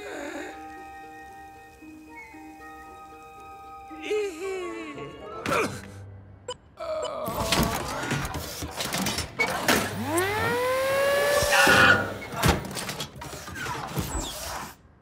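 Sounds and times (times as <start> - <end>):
light music: 0.0 - 7.5
clattering mechanical effects: 7.5 - 14.7.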